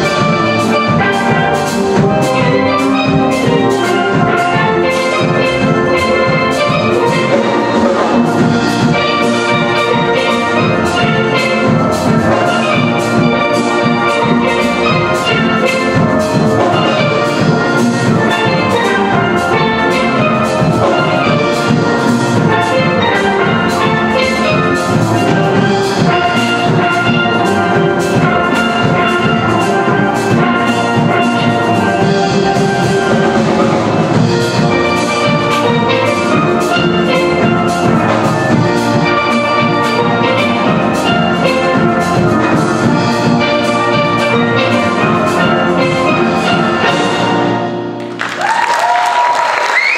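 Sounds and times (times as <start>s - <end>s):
drum kit beat: 0.0s - 49.9s
steel pans playing: 0.0s - 49.9s.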